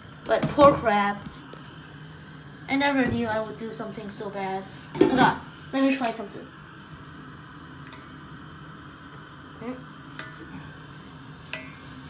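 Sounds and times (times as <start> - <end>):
water boiling in pot: 0.0 - 12.0
pot clicks and knocks: 10.1 - 10.5.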